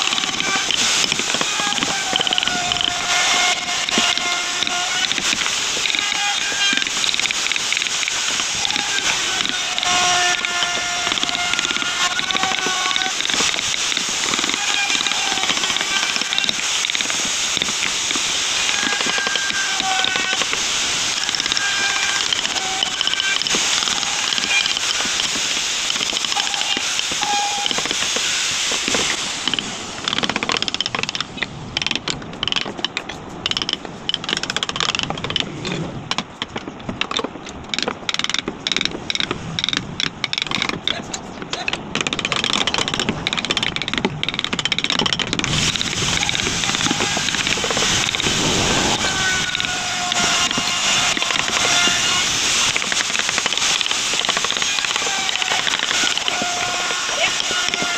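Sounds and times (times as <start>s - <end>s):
mallet tapping carving gouge: 8.7s - 20.6s.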